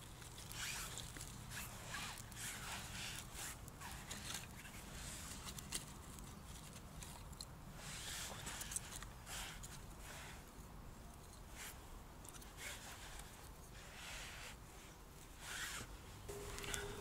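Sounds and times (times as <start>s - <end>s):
wooden sticks clicking and rustling: 16.3s - 17.0s.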